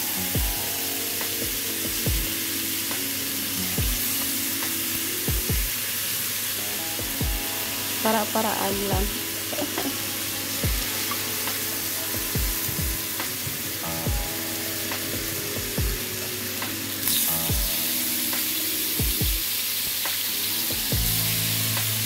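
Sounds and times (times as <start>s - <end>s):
background music with a beat: 0.0s - 22.0s
meat sizzling on a grill pan: 0.0s - 22.0s.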